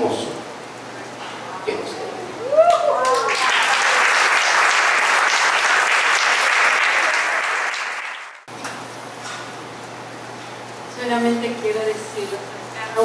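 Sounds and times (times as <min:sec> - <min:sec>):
audience applauding: 0:02.6 - 0:08.5.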